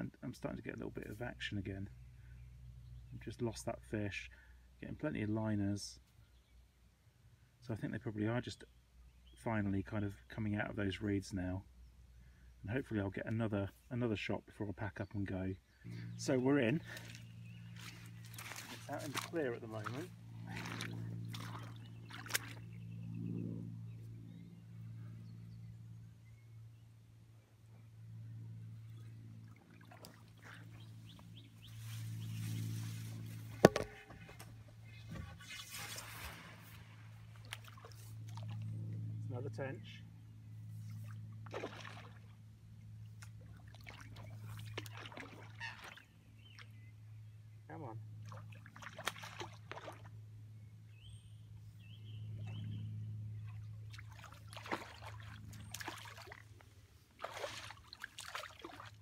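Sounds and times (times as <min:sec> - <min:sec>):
faint birdsong: 0:00.0 - 0:59.0
steady low hum: 0:15.2 - 0:59.0
water splashing from thrashing fish: 0:17.8 - 0:22.6, 0:35.8 - 0:38.7, 0:41.4 - 0:42.4, 0:43.3 - 0:46.1, 0:48.2 - 0:50.1, 0:53.8 - 0:56.5, 0:57.1 - 0:59.0.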